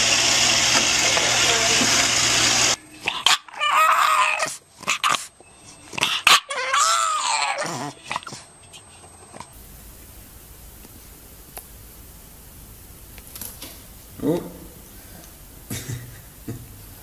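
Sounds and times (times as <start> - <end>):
puppy whining: 2.8 - 9.6.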